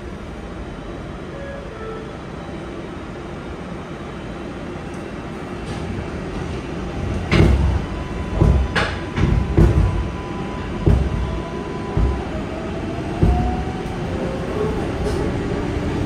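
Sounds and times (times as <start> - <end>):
subway train rumbling on rails: 0.0 - 16.0
wheels clanking over rail joints: 10.8 - 14.0.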